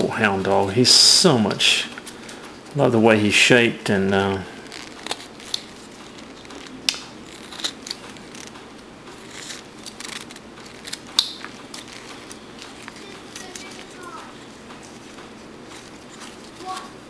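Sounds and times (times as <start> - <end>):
knife whittling wood: 4.6 - 17.0
sharp wood snaps: 6.4 - 13.8.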